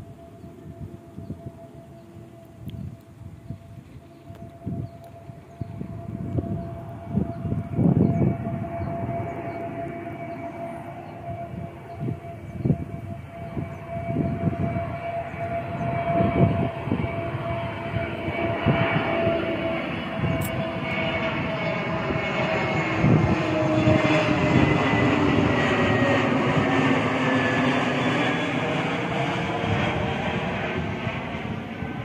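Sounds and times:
jet engines whining and roaring: 0.0s - 32.0s.

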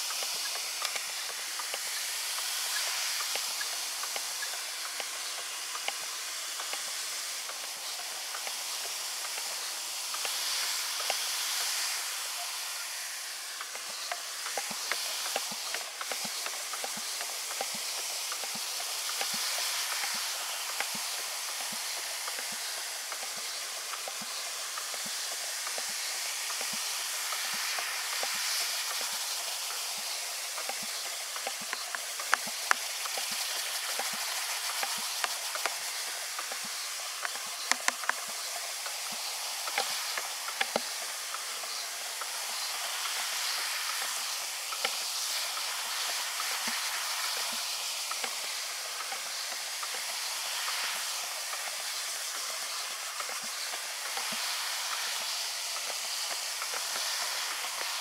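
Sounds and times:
froth fizzing: 0.0s - 58.0s
sharp clicks: 37.2s - 38.3s.

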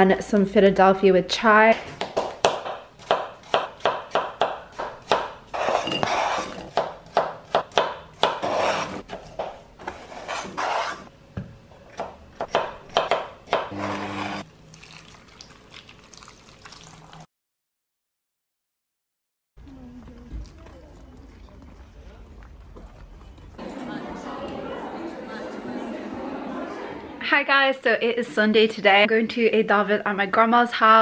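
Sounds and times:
knife chopping on board: 2.0s - 9.5s, 12.0s - 13.7s
scraping pieces across board: 5.5s - 6.7s, 9.8s - 11.1s.

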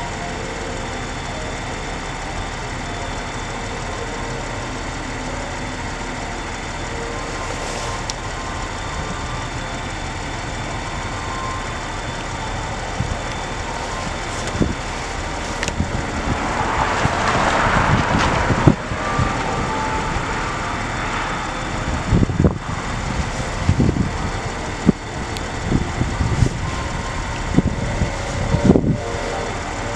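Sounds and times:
road traffic rumble: 0.0s - 29.9s
wind buffeting microphone: 7.9s - 29.9s
vehicle passing: 12.6s - 29.9s.

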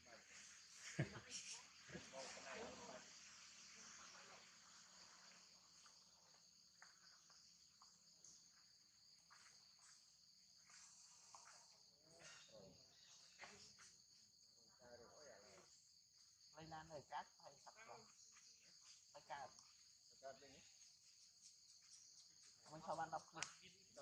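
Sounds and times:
insect chorus drone: 0.0s - 24.0s.

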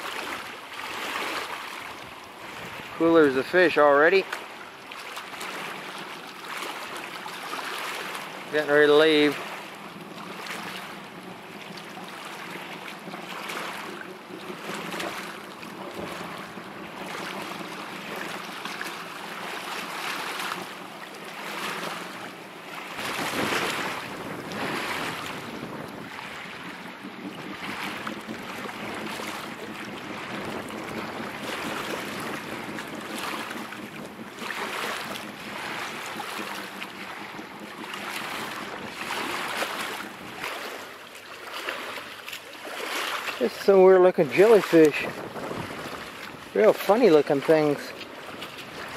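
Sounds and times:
choppy water: 0.0s - 48.9s
low motor hum: 4.2s - 48.9s
wind gusting against microphone: 22.8s - 41.0s, 43.4s - 48.9s.

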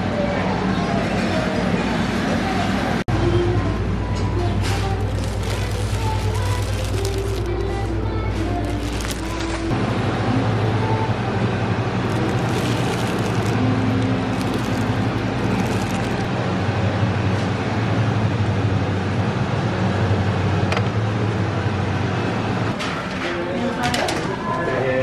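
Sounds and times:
refrigeration and ventilation hum: 0.0s - 25.0s
plastic bags rustling: 4.7s - 9.7s, 12.0s - 16.3s.

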